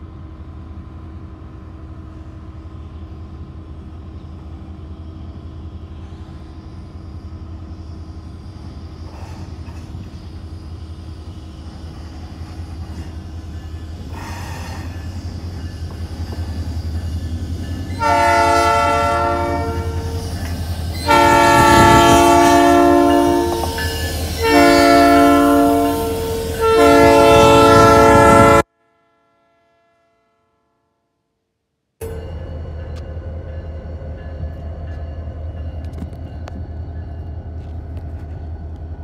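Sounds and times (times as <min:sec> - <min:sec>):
locomotive engine rumble: 0:00.0 - 0:28.6
train air horn blasts: 0:17.9 - 0:30.8.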